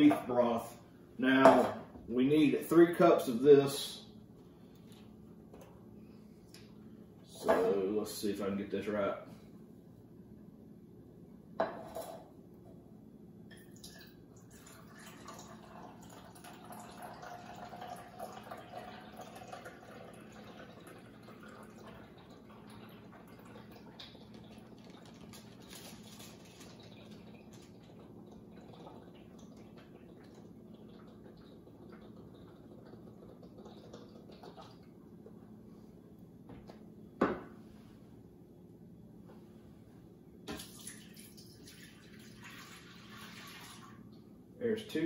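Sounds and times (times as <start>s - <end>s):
liquid pouring into a cup: 13.5s - 35.4s, 40.5s - 44.2s.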